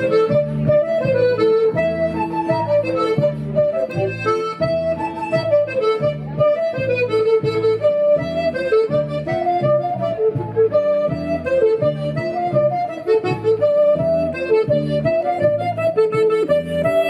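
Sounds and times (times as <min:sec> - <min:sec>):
accordion folk dance tune: 0:00.0 - 0:17.0.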